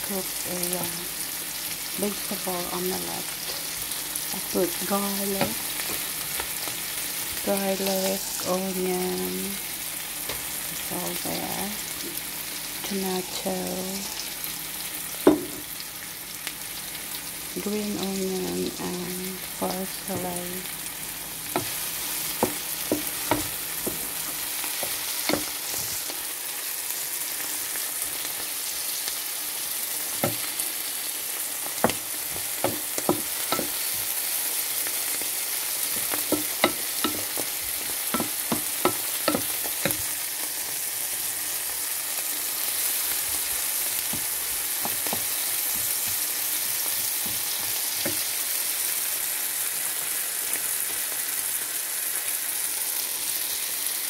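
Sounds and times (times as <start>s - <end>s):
vegetables sizzling in a frying pan: 0.0s - 54.0s
wooden spatula tapping pan: 22.4s - 25.5s, 35.9s - 40.1s.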